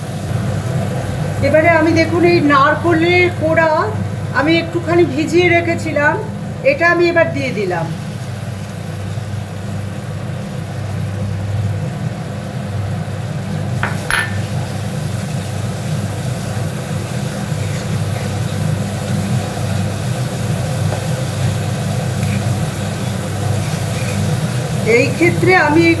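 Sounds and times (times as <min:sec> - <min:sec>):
spatula knocking on pan: 0:13.8 - 0:14.4
spatula scraping a pan: 0:22.1 - 0:24.5.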